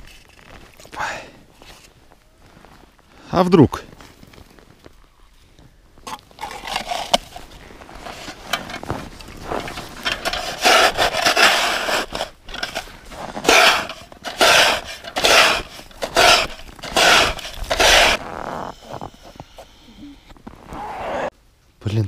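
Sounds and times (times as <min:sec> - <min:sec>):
shovel scraping snow off ice: 0:06.4 - 0:18.6.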